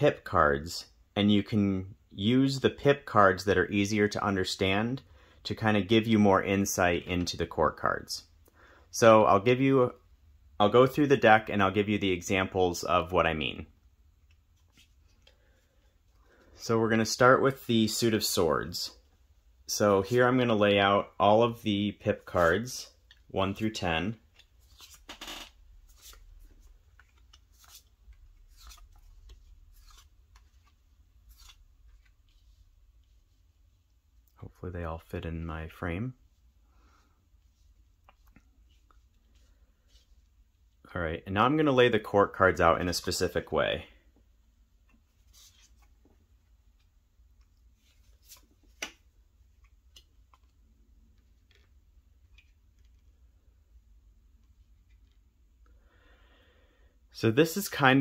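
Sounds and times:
cards tapping and sliding: 24.3 - 32.2, 47.8 - 50.6.

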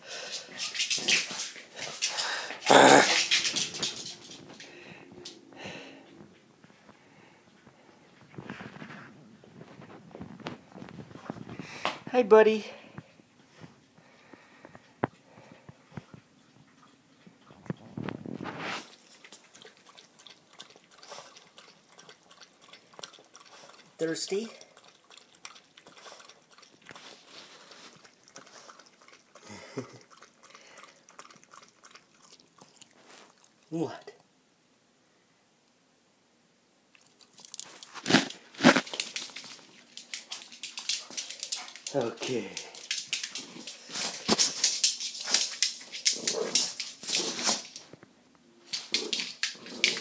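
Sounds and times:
dog vocal sounds: 0.2 - 5.4, 37.8 - 47.9, 48.7 - 50.0
dog lapping water from bowl: 18.8 - 32.8, 38.9 - 47.8, 48.7 - 50.0.

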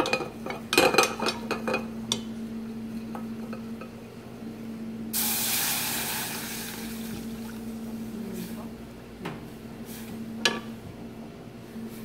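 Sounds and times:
loud sizzling hiss: 5.2 - 7.2
liquid pouring: 5.2 - 7.8.

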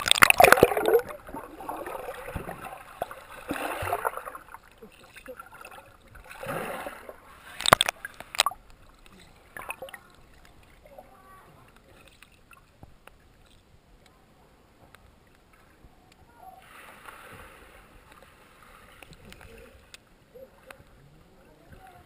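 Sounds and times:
rushing water: 0.0 - 12.0
water splashes: 0.0 - 12.8
low underwater hiss: 0.0 - 22.0.

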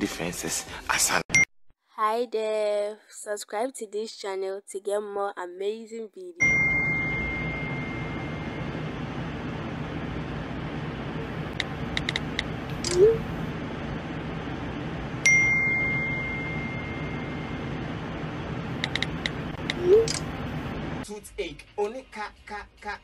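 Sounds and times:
bright message ding: 6.4 - 8.7, 15.2 - 17.8
steady low hum: 6.4 - 21.0.

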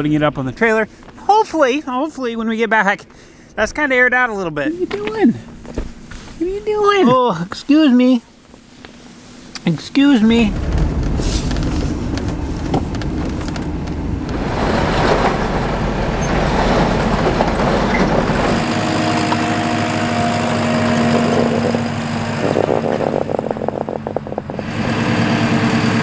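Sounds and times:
truck cab road rumble: 0.0 - 26.0
diesel engine running: 8.4 - 26.0.

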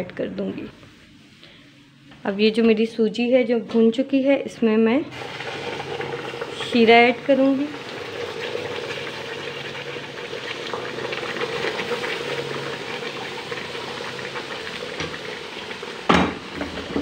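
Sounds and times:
hot syrup sizzling and crackling: 5.1 - 17.0.

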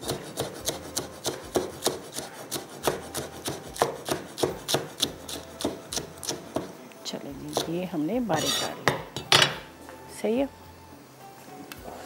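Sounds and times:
cleaver chopping on wooden board: 0.0 - 6.7.

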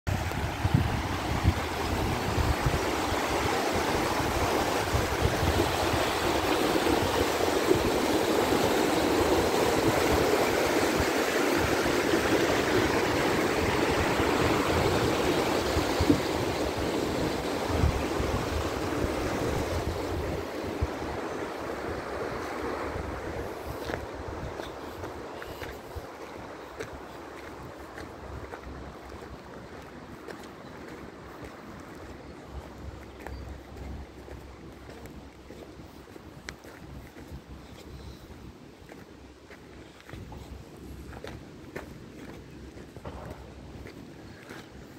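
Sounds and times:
steady rushing noise: 0.1 - 27.2.

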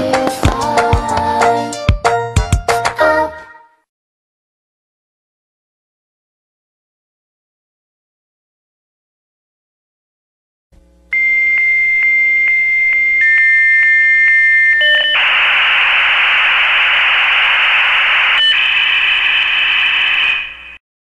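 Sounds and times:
modem rushing hiss: 15.0 - 20.8.

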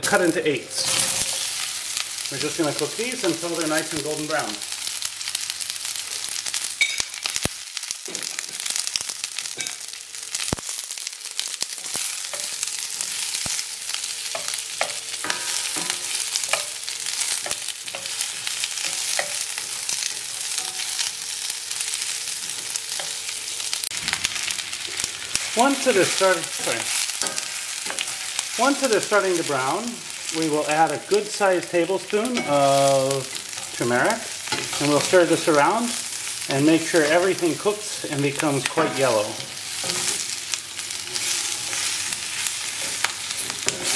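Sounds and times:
utensil scraping a pan: 0.0 - 1.9, 24.2 - 29.4
onions sizzling in a frying pan: 0.0 - 43.9.

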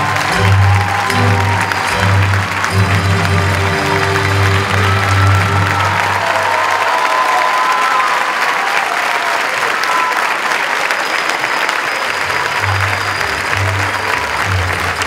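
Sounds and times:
music playing: 0.0 - 6.5, 12.2 - 15.0
audience applauding: 0.0 - 15.0.

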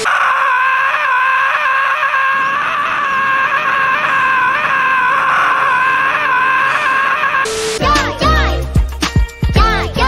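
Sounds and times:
long high-pitched scream: 0.0 - 7.8.

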